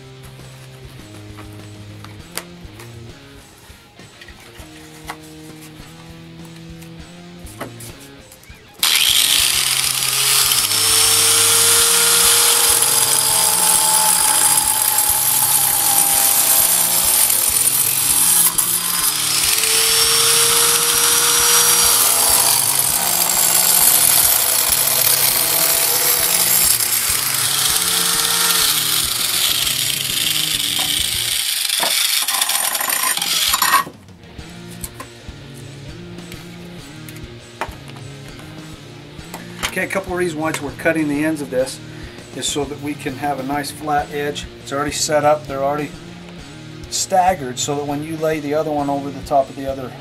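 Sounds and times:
angle grinder cutting brick: 0:08.8 - 0:33.9.

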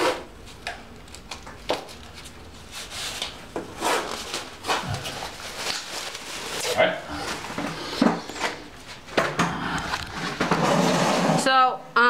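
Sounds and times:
plastic sheeting rustling: 0:01.8 - 0:07.6.

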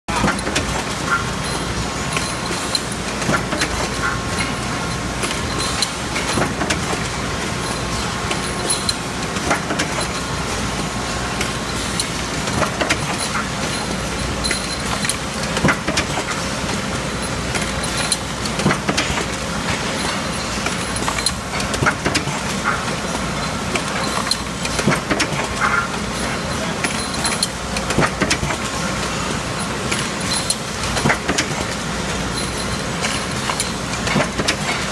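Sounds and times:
conveyor machine running: 0:00.1 - 0:34.9
metallic clicks and clanks: 0:11.4 - 0:28.7.

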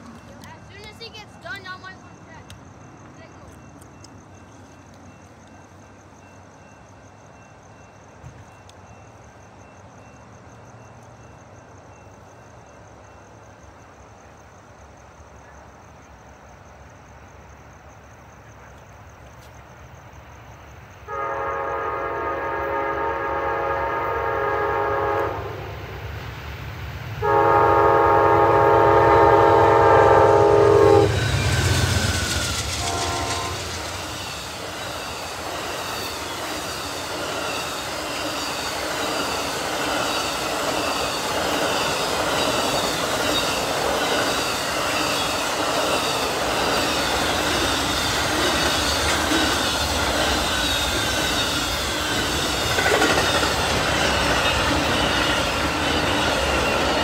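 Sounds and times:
low train rumble: 0:00.0 - 0:57.0
train cars rushing past: 0:00.0 - 0:57.0
train horn blasts: 0:21.1 - 0:25.8, 0:27.2 - 0:31.8, 0:32.8 - 0:34.0.

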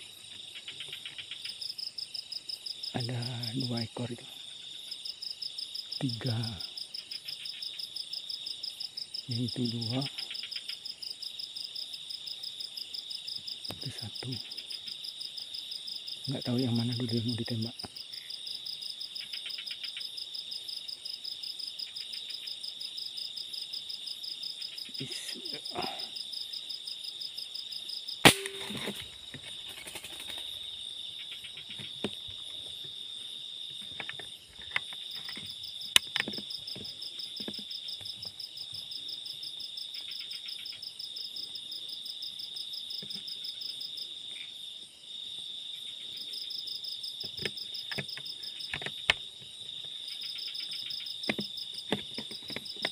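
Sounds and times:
crickets chirping: 0:00.0 - 0:52.9
air rifle shots: 0:28.3 - 0:29.0.

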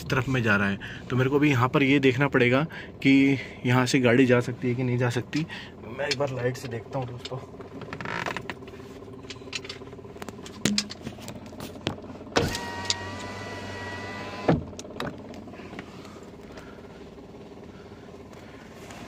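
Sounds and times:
electric window motor whine: 0:12.2 - 0:15.4.

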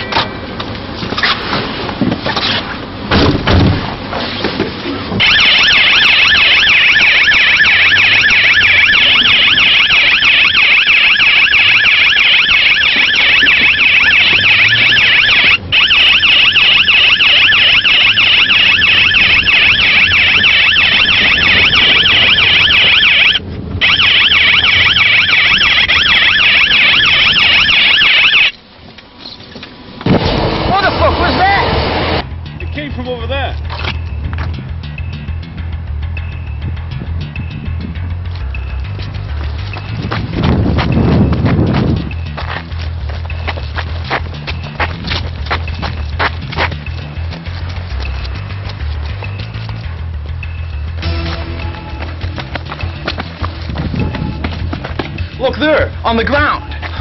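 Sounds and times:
warbling electronic siren: 0:05.2 - 0:28.6.

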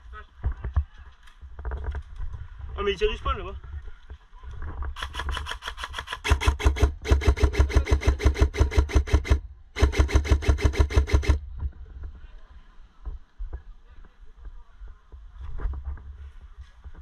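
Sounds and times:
airsoft rifle full-auto fire: 0:05.0 - 0:11.4.

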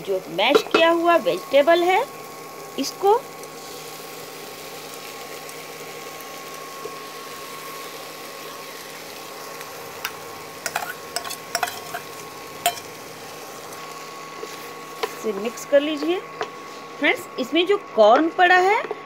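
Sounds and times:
low sizzle in a pan: 0:00.0 - 0:19.0
spatula knocking and scraping pan: 0:10.7 - 0:12.9.

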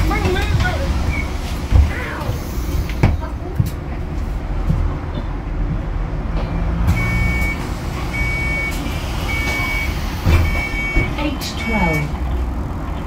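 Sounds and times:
bus engine rumble: 0:00.0 - 0:13.0
high warning beep: 0:06.5 - 0:07.6, 0:08.2 - 0:12.1.

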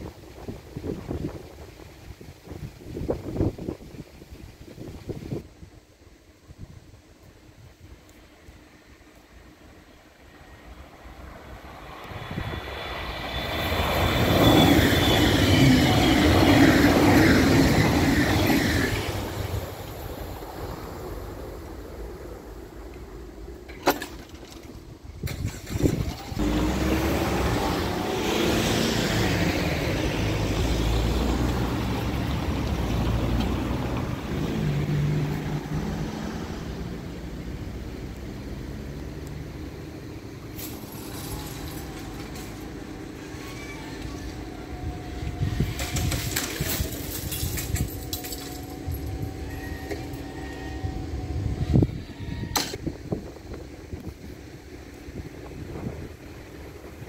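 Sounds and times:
vehicle driving past: 0:26.4 - 0:39.9.

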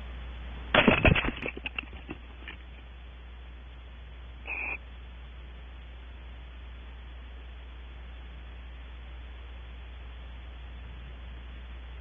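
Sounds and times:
owl raspy call: 0:04.4 - 0:04.9.

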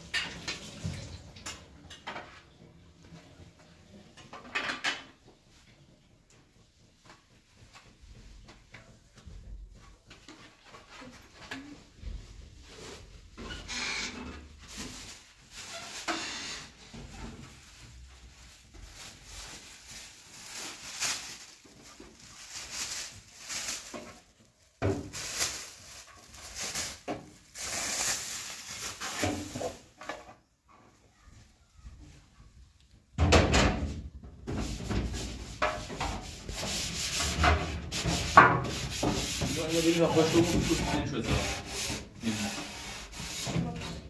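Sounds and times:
plastic bag and containers handled: 0:09.1 - 0:33.0, 0:34.5 - 0:44.0
plastic tray scrubbed in sink: 0:34.6 - 0:44.0.

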